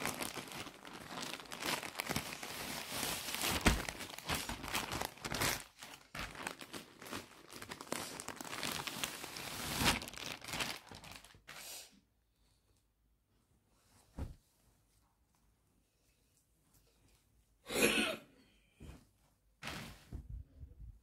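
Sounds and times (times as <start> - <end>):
plastic packaging crinkling and tearing: 0.0 - 11.6.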